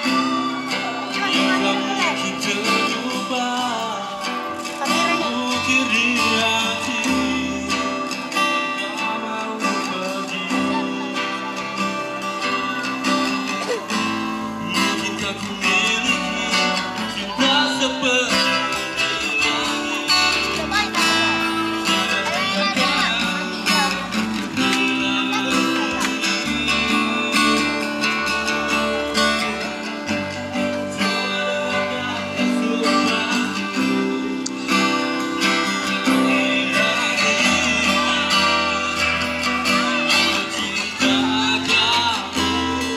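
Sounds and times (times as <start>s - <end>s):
person singing: 0.0s - 42.9s
strummed guitar: 0.0s - 42.9s.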